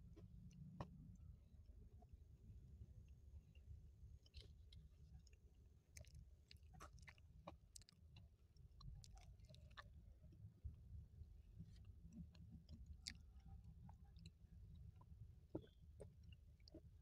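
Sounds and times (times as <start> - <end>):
faint low hum: 0.0 - 17.0
person chewing food: 4.2 - 10.0, 11.5 - 17.0.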